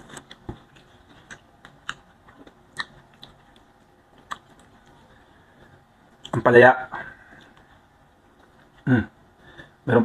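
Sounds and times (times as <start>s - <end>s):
man chewing food: 0.0s - 6.4s, 7.3s - 8.8s.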